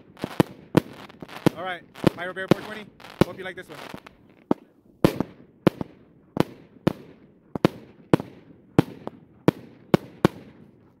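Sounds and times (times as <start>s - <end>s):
firework bangs with echo: 0.0s - 10.8s.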